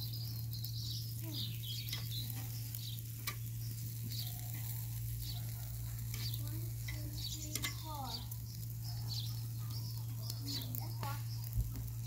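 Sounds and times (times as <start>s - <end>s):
faint crackles: 0.0s - 12.0s
meat sizzling on a grill: 0.0s - 12.0s
steady low hum: 0.0s - 12.0s
metal tongs clicking: 7.5s - 7.8s.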